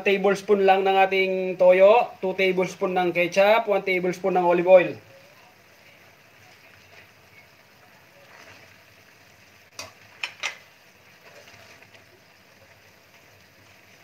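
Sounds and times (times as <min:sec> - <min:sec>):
chicken simmering faint sizzle: 0:00.0 - 0:14.0
metal tongs clinking on pan: 0:09.8 - 0:10.7.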